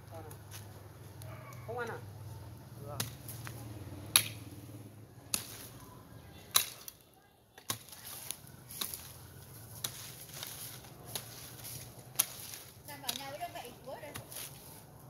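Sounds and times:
hoe striking ground: 3.0s - 3.5s, 4.1s - 4.5s, 5.3s - 5.8s, 6.5s - 7.0s, 7.6s - 14.8s.

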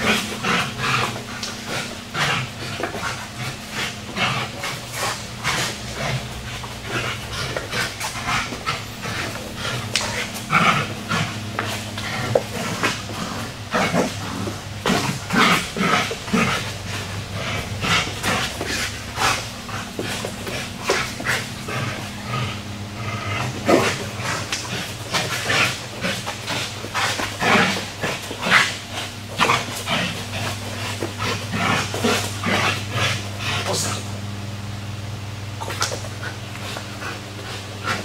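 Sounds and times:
dog panting: 0.0s - 34.2s, 35.6s - 38.0s
steady low hum: 0.0s - 38.0s.

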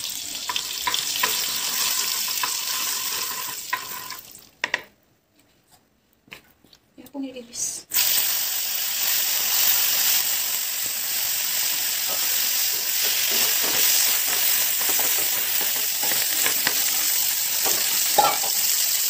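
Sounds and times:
cheese sizzling in oil: 0.0s - 4.6s, 7.9s - 19.0s
wooden spatula tapping and scraping: 2.3s - 4.9s, 12.1s - 18.6s.

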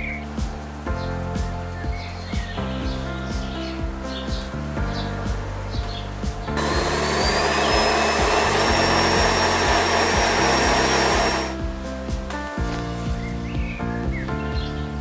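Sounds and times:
fruit grinding in blender: 6.6s - 11.5s
blender motor whine: 6.6s - 11.6s.

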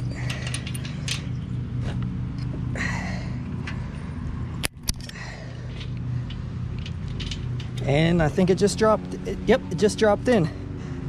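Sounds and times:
metal clicks and rattles: 0.0s - 2.6s, 3.4s - 8.2s
steady low hum: 0.0s - 11.0s.

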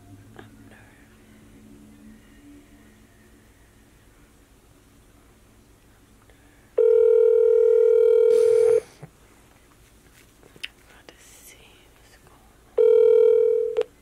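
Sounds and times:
phone ringback tone: 6.8s - 8.9s, 12.8s - 13.9s.

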